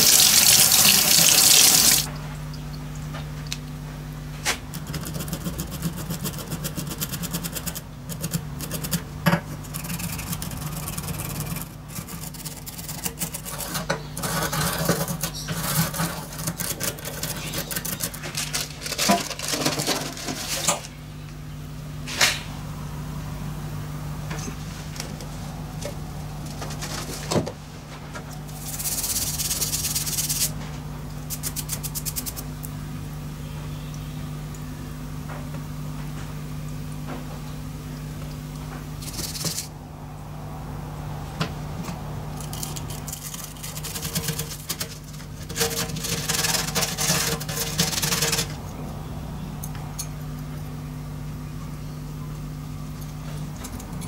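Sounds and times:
toothbrush scrubbing metal parts: 0.0 - 2.1, 4.7 - 20.9, 28.4 - 30.6, 31.3 - 32.5, 39.0 - 39.7, 42.3 - 48.6
steady low hum: 0.0 - 54.0.

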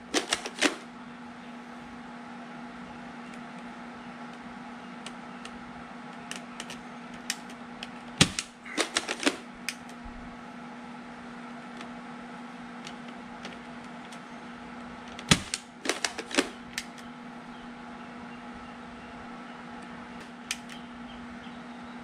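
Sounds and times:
steady low hum: 0.0 - 22.0
gun clicks: 0.1 - 0.8, 6.3 - 10.0, 15.1 - 17.1, 20.4 - 20.8
bug gun shot: 8.2 - 9.4, 15.3 - 16.6.

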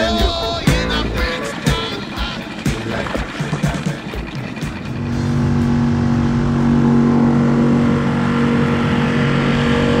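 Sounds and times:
outboard motor running steadily: 0.0 - 10.0.

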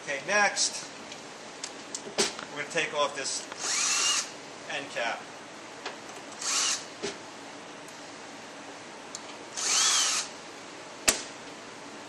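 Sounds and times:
cordless drill spinning: 3.6 - 4.3, 6.4 - 6.9, 9.6 - 10.4.

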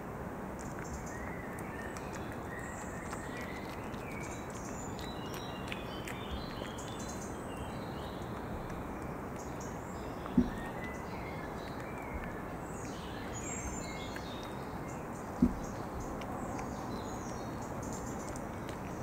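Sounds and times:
animal crunching peanuts: 0.6 - 19.0
faint bird chirps: 0.6 - 19.0
short low thump: 10.3 - 10.6, 15.4 - 15.7.

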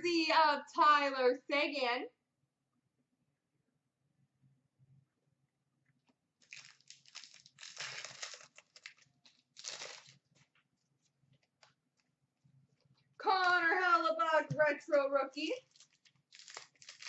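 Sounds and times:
foil wrapper tearing and crinkling: 6.4 - 10.5, 15.6 - 17.0.

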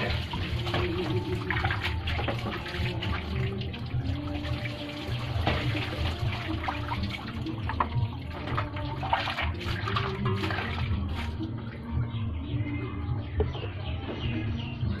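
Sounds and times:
water splashing in a basin: 0.0 - 11.8.

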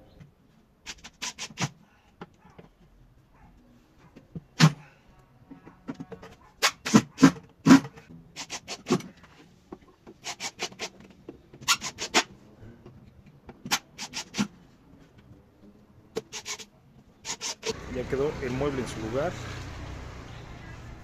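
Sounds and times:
nail gun firing into wood: 6.6 - 9.1.

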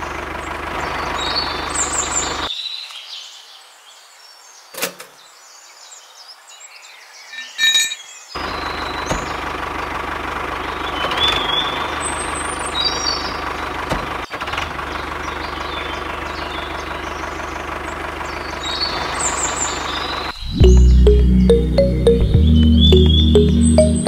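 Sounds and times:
tractor engine running: 0.0 - 2.5, 8.4 - 24.0
short high chirps: 20.4 - 24.0.

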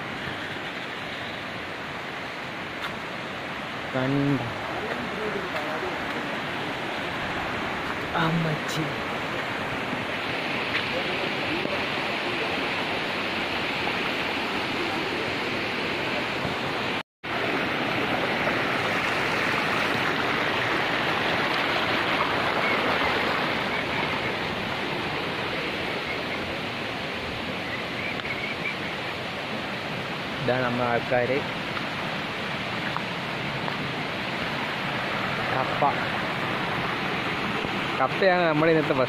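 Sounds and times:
stream rushing over rocks: 0.0 - 39.0.

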